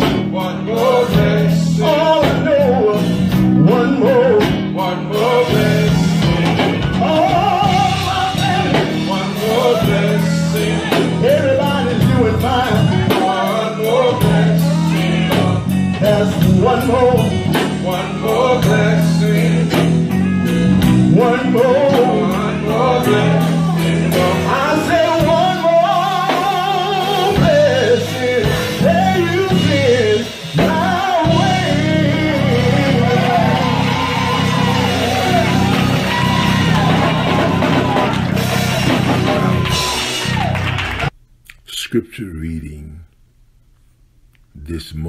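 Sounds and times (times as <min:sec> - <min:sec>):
man singing into a microphone: 0:00.0 - 0:35.4
electric guitar: 0:00.0 - 0:41.1
band with a steady beat: 0:00.0 - 0:41.7.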